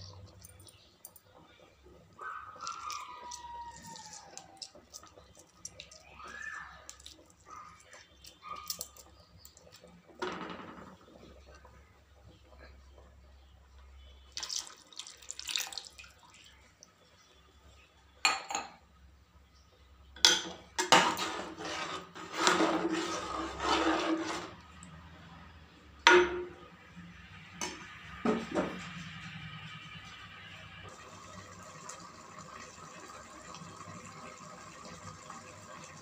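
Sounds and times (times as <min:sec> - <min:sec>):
milk pouring and splashing: 0:00.0 - 0:13.0, 0:14.2 - 0:17.4.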